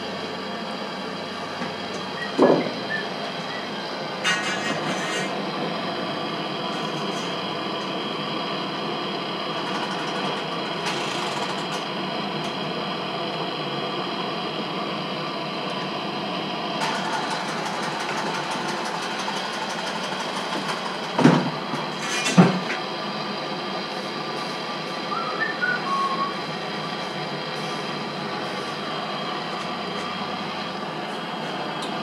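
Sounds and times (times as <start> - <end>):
gas torch flame hiss: 26.2 - 32.0.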